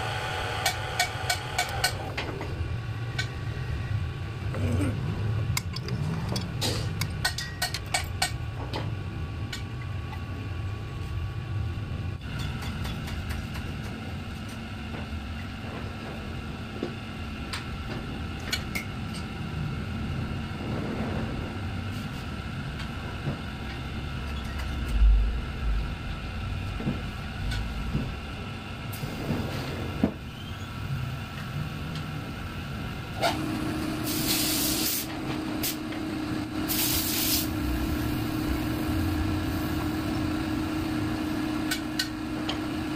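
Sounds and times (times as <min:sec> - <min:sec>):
workshop machine hum: 0:00.0 - 0:42.9
short hissing bursts: 0:34.1 - 0:35.1, 0:36.7 - 0:37.5.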